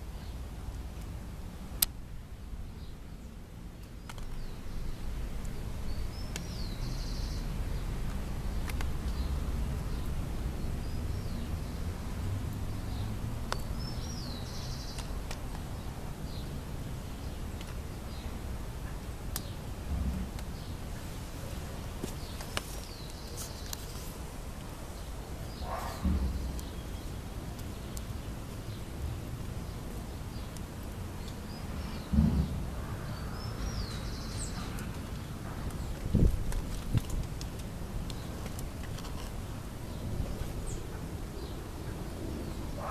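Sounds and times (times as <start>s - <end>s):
bird calls and chirps: 2.8s - 11.9s, 12.7s - 19.6s, 25.0s - 28.9s, 31.2s - 36.3s.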